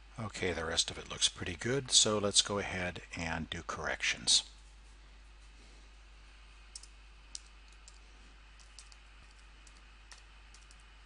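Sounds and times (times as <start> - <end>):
faint keyboard keystrokes: 8.6 - 10.9.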